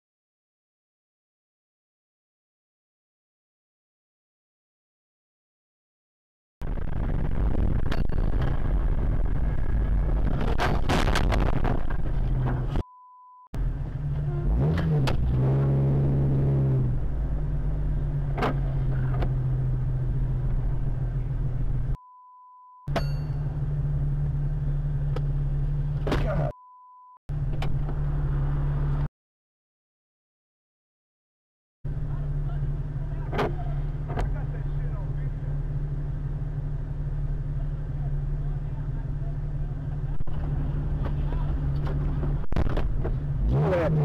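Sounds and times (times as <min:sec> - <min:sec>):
car road and engine noise: 0:06.6 - 0:29.1, 0:31.9 - 0:44.0
short censor beeps: 0:12.8 - 0:13.5, 0:22.0 - 0:23.2, 0:26.5 - 0:27.2
low held tone: 0:21.9 - 0:23.9.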